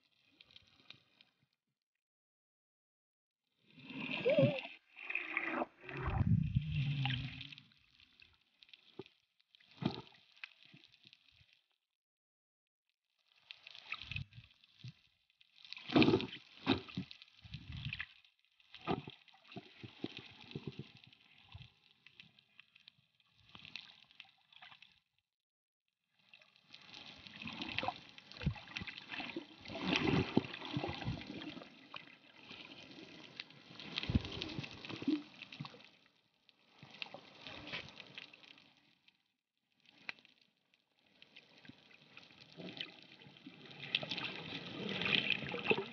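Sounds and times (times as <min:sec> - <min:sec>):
water sloshing and gurgling: 0:03.5 - 0:11.8, 0:13.2 - 0:25.2, 0:26.2 - 0:45.9.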